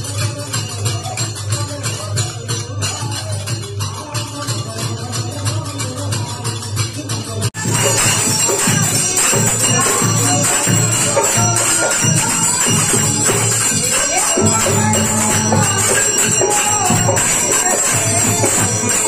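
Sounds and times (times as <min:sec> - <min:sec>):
hand percussion jingling: 0:00.0 - 0:19.0
drum beat: 0:07.6 - 0:19.0
keyed instrument melody: 0:07.6 - 0:19.0.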